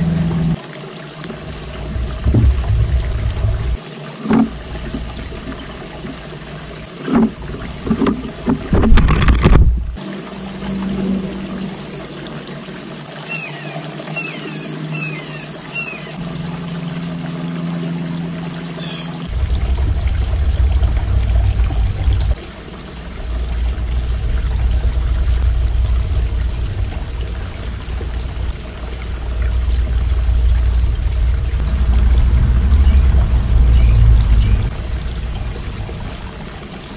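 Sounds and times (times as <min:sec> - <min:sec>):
fountain water trickling: 0:00.0 - 0:08.8, 0:09.9 - 0:36.9
low rumble: 0:01.4 - 0:03.8, 0:19.3 - 0:22.4, 0:23.1 - 0:36.9.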